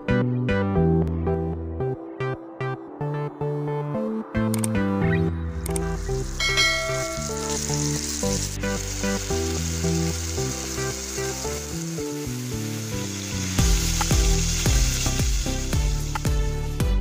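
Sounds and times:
background music: 0:00.0 - 0:17.0
curry sizzling in a pot: 0:06.4 - 0:16.5.

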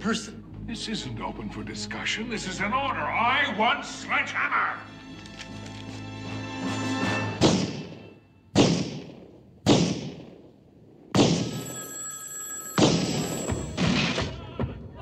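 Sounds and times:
revolver gunshots indoors: 0:08.6 - 0:10.4
telephone bell ringing: 0:11.5 - 0:13.8.

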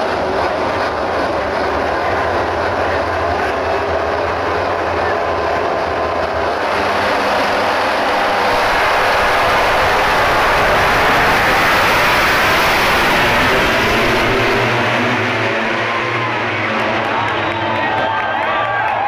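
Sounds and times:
racing motorcycles engines: 0:00.0 - 0:19.0.

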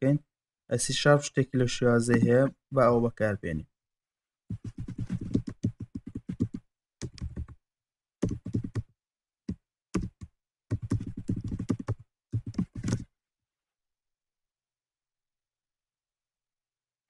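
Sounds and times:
computer keyboard typing: 0:04.5 - 0:07.6, 0:08.2 - 0:08.9, 0:09.5 - 0:13.1.

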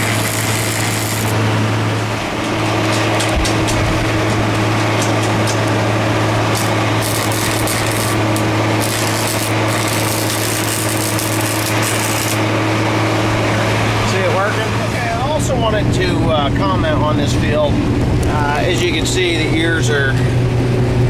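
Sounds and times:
welding arc crackling: 0:00.0 - 0:12.7
low machine hum: 0:00.0 - 0:21.0.

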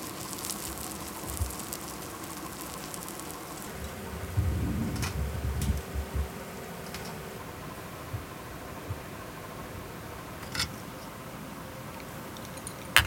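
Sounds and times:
scallops sizzling on a grill: 0:00.0 - 0:07.4.

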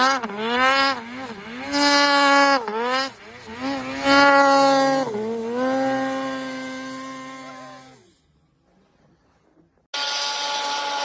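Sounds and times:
snowmobile engine revving: 0:00.0 - 0:09.0, 0:10.0 - 0:11.0.

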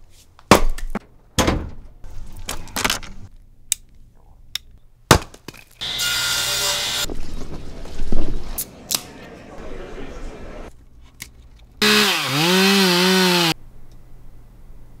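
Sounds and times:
axe chopping firewood: 0:05.1 - 0:05.6
table saw cutting board: 0:05.8 - 0:07.1, 0:11.8 - 0:13.6.

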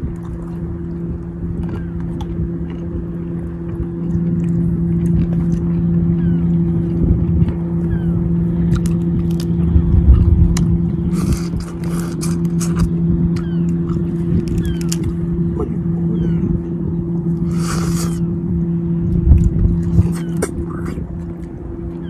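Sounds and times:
low motor hum: 0:00.0 - 0:22.0
chewing: 0:01.6 - 0:02.9, 0:03.6 - 0:06.0, 0:10.1 - 0:15.8, 0:17.3 - 0:18.2, 0:19.3 - 0:21.5.

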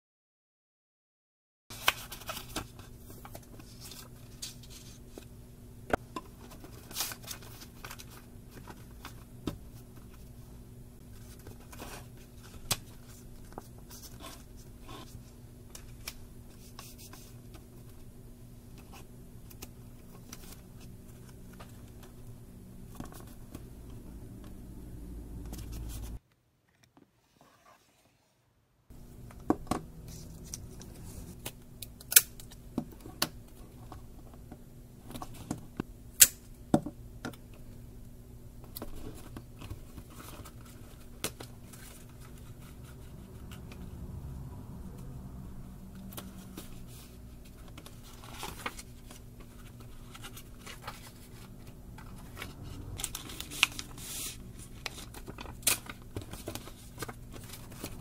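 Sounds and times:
steady low hum: 0:02.8 - 0:26.2, 0:28.9 - 0:58.0
paper rustling: 0:46.0 - 0:58.0.

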